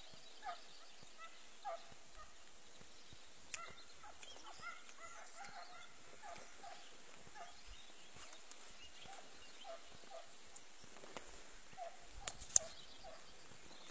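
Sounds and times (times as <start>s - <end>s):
dogs yelping: 0.4s - 2.4s, 3.5s - 7.7s, 9.0s - 10.4s, 11.7s - 13.3s
sharp click: 12.2s - 12.8s.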